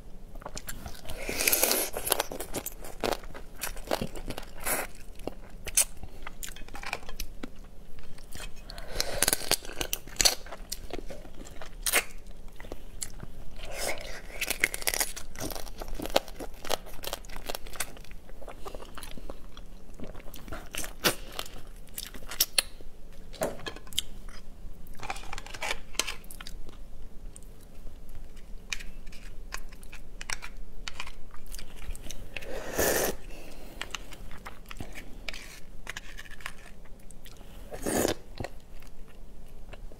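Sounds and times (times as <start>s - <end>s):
person chewing: 0.4s - 22.8s, 28.3s - 39.9s
crunching crab shell: 14.0s - 18.1s.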